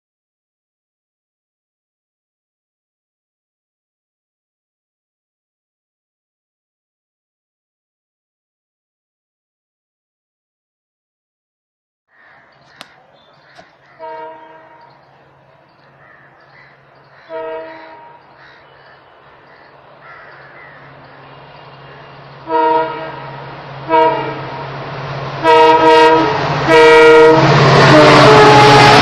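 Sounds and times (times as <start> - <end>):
locomotive engine drone: 12.4 - 29.0
train wheel noise: 12.6 - 29.0
locomotive air horn blasts: 13.2 - 15.1, 17.2 - 18.3, 21.2 - 29.0.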